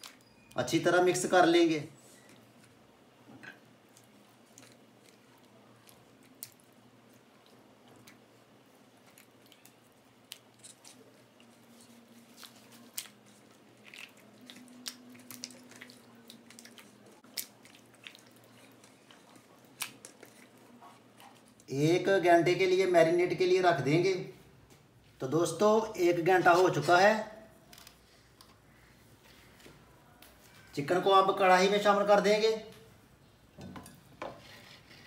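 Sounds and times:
wet squelches and clicks: 3.4 - 21.7.

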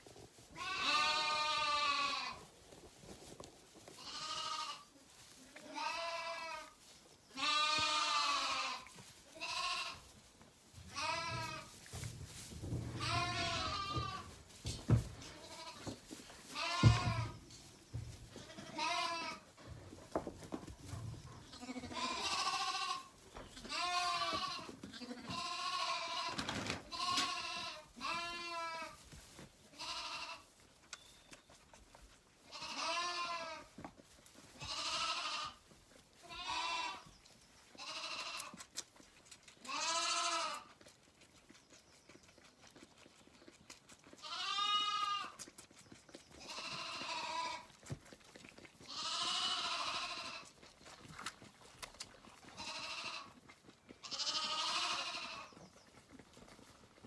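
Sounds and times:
lamb bleating: 0.6 - 2.4, 4.0 - 4.9, 5.5 - 10.0, 10.9 - 11.7, 13.0 - 14.4, 16.5 - 17.4, 18.4 - 19.5, 21.5 - 29.0, 29.8 - 30.5, 32.5 - 33.7, 34.6 - 35.6, 36.2 - 37.0, 37.8 - 38.6, 39.6 - 40.7, 44.1 - 45.4, 46.4 - 47.8, 48.8 - 50.5, 52.4 - 53.4, 54.0 - 55.5.

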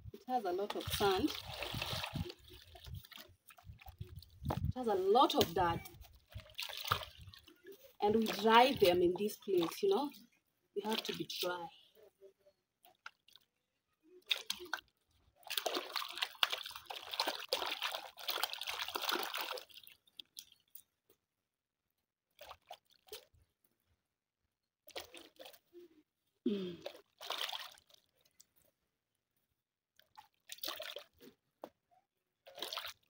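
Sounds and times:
water splashing and dripping: 0.2 - 11.6, 14.2 - 20.8, 24.9 - 25.6, 26.8 - 28.6, 30.0 - 31.4, 32.4 - 33.0
hands swishing yam in water: 0.5 - 10.0, 32.4 - 33.0.

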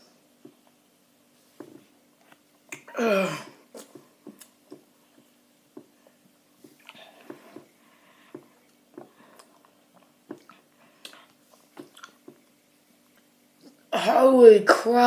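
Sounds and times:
boy's wordless cry: 2.9 - 3.6.

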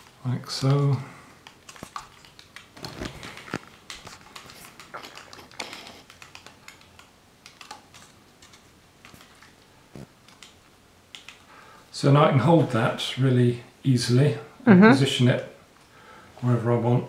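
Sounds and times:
plastic clicks and rustles: 0.0 - 10.6.

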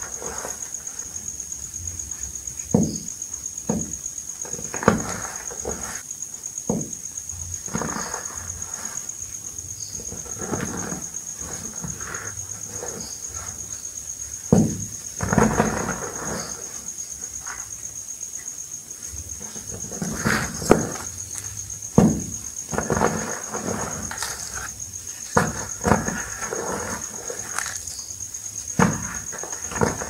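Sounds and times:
chalk dust crumbling: 19.0 - 30.0.

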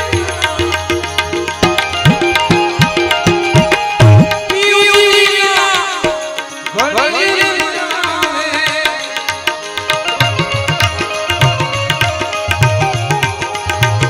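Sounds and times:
melody of bending notes: 0.0 - 5.3
held harmonium-like note: 0.0 - 14.0
tabla drums playing: 0.0 - 14.0.

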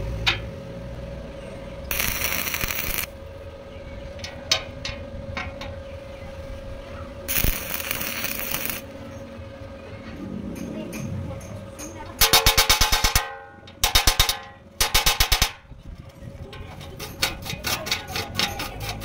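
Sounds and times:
faint steady hum: 0.0 - 17.0
welding arc crackle: 1.9 - 3.2, 7.3 - 9.0, 12.2 - 13.2, 13.8 - 15.6.

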